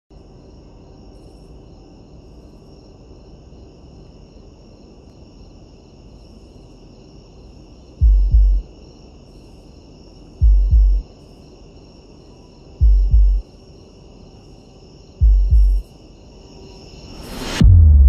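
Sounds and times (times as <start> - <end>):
crickets chirring: 0.1 - 17.4
deep loud boom: 17.3 - 18.0.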